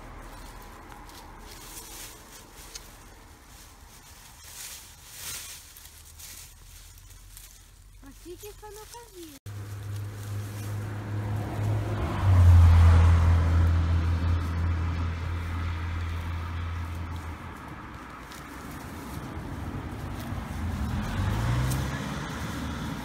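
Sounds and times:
engine humming: 0.0 - 23.0
engine note rising in pitch: 9.5 - 16.8.

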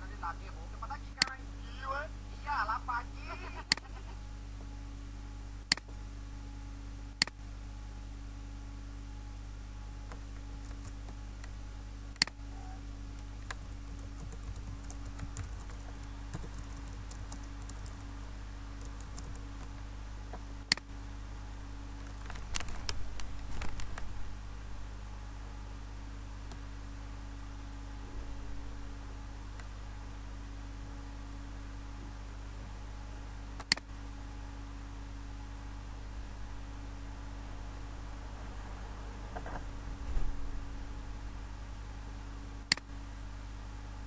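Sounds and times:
low electrical hum: 0.0 - 44.0
computer keyboard typing: 10.1 - 11.2, 13.4 - 18.1, 18.8 - 19.8
single sharp clicks: 42.7 - 42.9.

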